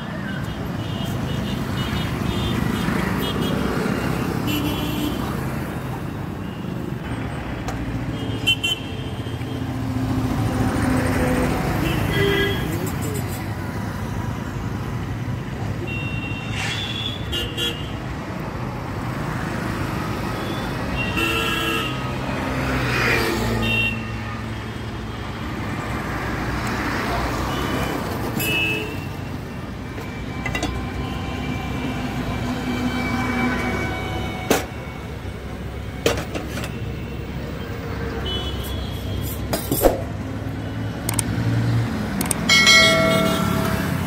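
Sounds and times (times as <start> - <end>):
road traffic passing: 0.0 - 44.0
sharp clicks: 41.0 - 41.4, 42.1 - 42.5
vehicle horn toots: 42.6 - 43.9.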